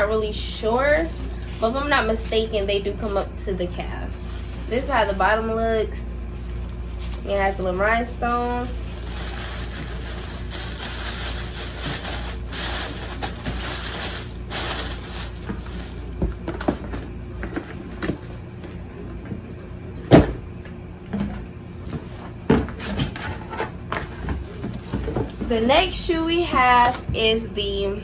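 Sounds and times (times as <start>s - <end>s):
packaging rustling: 8.6s - 16.2s.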